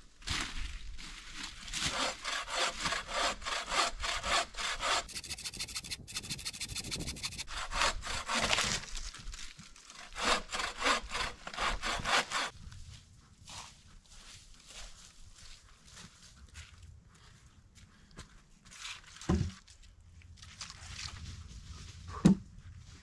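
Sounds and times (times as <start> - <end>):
hand saw cutting wood: 1.7 - 9.0, 9.9 - 12.5.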